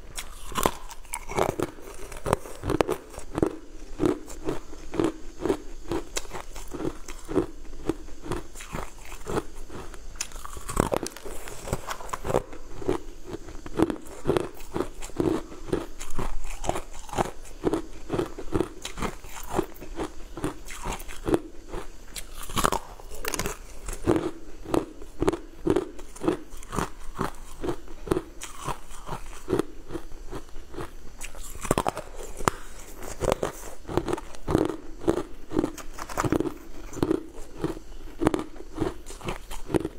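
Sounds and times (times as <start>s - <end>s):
crunching and chewing ice: 0.0s - 39.9s.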